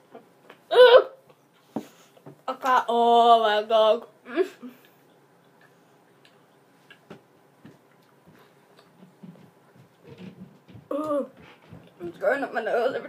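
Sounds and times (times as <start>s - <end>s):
faint clicks and mouth noises: 4.8s - 9.1s.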